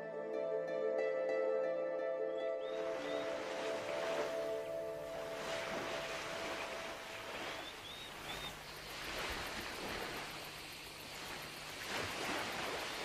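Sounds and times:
held music notes: 0.0s - 7.2s
sea surf washing on shore: 2.8s - 13.0s.

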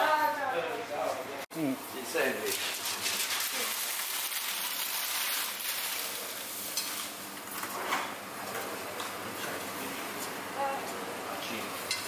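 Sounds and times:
food sizzling in hot oil: 1.8s - 7.4s.

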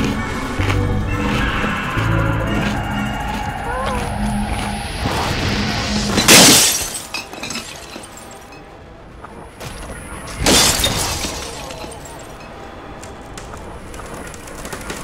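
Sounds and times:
loud crashes: 5.0s - 8.2s.

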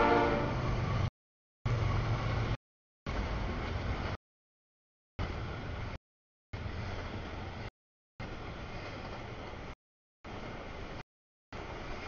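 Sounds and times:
freight train wheels rumbling on rail: 0.0s - 1.1s, 1.7s - 4.2s.

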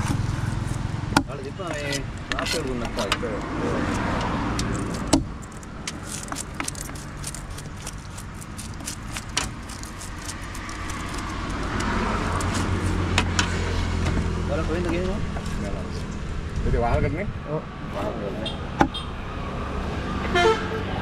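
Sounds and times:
sharp clicks and knocks: 0.0s - 15.5s
road traffic rumble: 0.0s - 21.0s.

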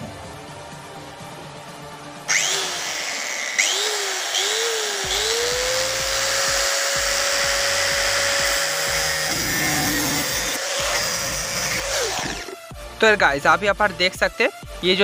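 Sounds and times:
angle grinder whining: 2.3s - 12.7s.

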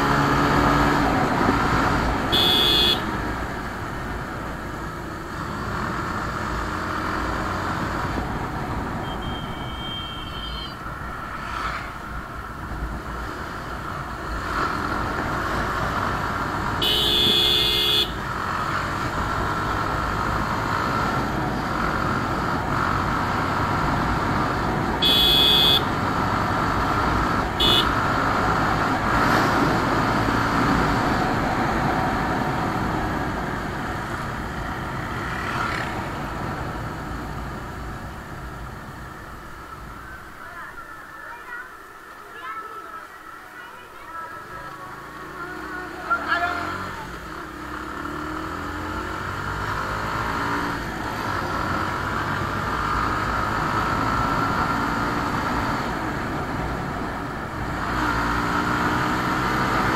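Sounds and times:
motorcycle engine and road noise: 0.0s - 59.9s
motorcycle horn honking: 2.3s - 3.1s, 9.0s - 10.8s, 16.8s - 18.2s, 25.0s - 25.9s, 27.6s - 28.0s.

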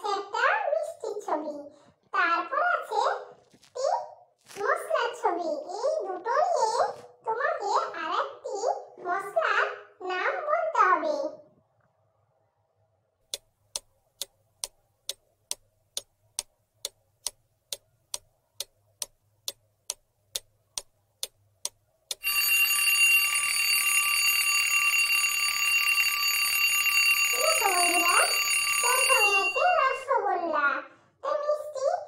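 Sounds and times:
clock ticking: 13.3s - 22.8s
alarm clock bell ringing: 22.2s - 30.2s.

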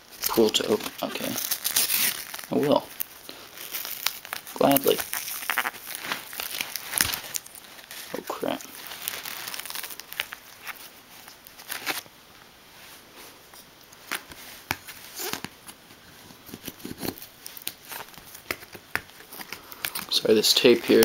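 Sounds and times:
cardboard and tape rustling: 0.0s - 12.1s, 14.0s - 21.0s.

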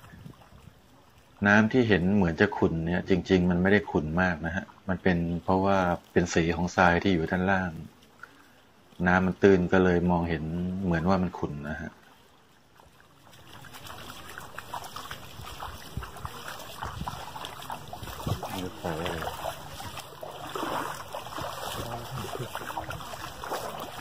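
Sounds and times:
feet splashing through water: 0.0s - 24.0s
faint voices: 17.6s - 20.0s, 20.9s - 24.0s.

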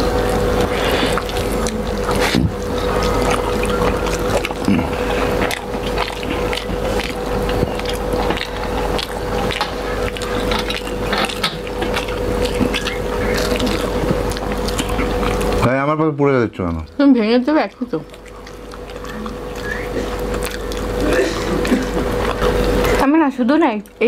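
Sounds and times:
fingers mixing food on steel plate: 0.0s - 15.7s
wet chewing and lip-smacking: 0.0s - 15.7s, 16.5s - 24.0s
steady hum: 0.0s - 24.0s.

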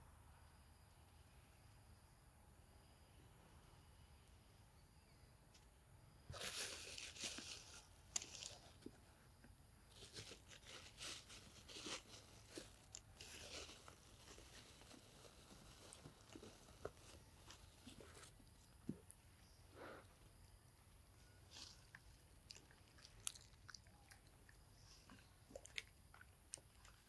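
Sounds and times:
monkey chewing and crunching food: 21.4s - 27.0s.

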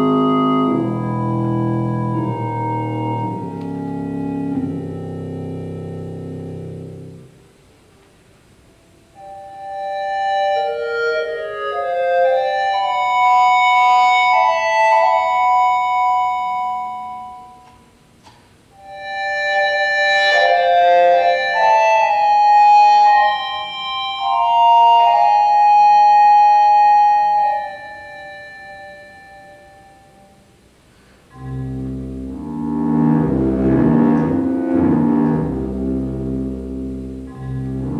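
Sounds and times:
synthesized sustained notes: 0.0s - 7.4s, 31.3s - 37.9s.

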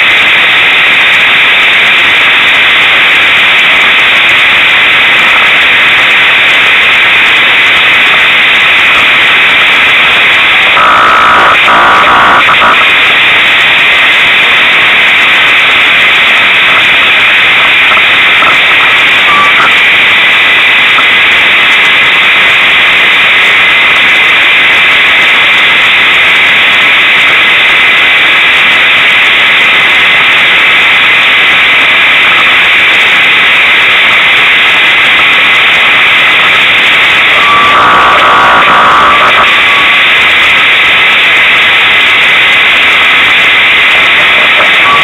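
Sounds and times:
distorted truck engine running: 8.6s - 13.1s, 36.6s - 40.3s.

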